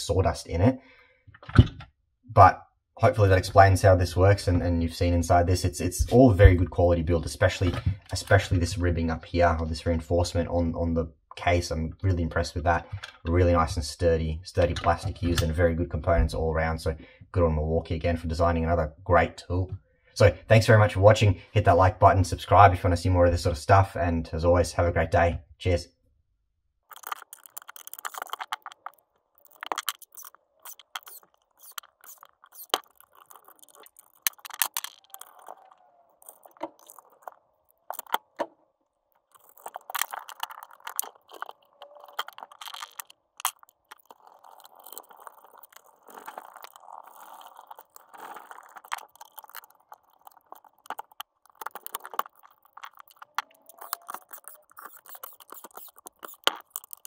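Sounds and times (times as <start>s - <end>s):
rustling: 26.9s - 38.3s, 39.2s - 57.0s
plastic and metal parts clicking: 26.9s - 38.5s, 39.3s - 57.0s.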